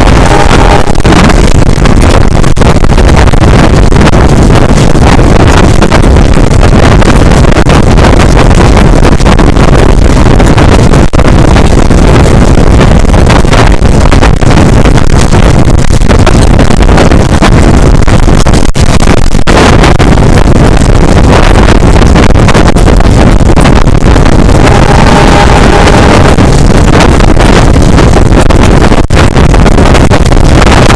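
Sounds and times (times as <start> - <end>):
wind buffeting microphone: 0.0 - 30.9
train rumbling on track: 24.4 - 27.0.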